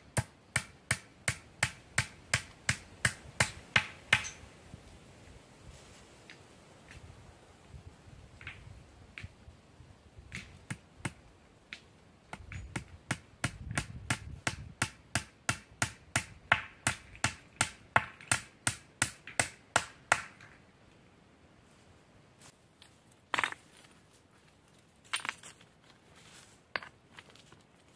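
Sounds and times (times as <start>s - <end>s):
hammer striking wood: 0.2s - 4.4s, 12.4s - 20.5s.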